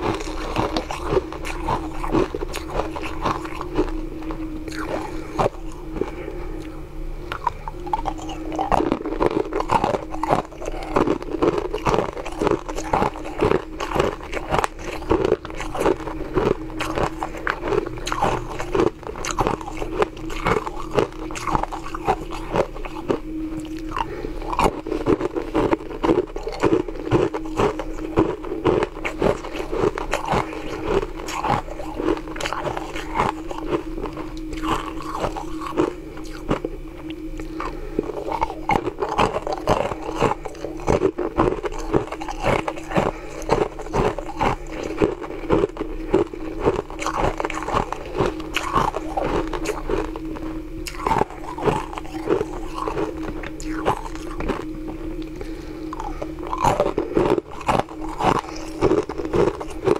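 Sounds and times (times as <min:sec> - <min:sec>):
ice crunching between teeth: 0:00.0 - 0:06.7, 0:07.3 - 0:59.9
steady low hum: 0:00.0 - 0:59.9.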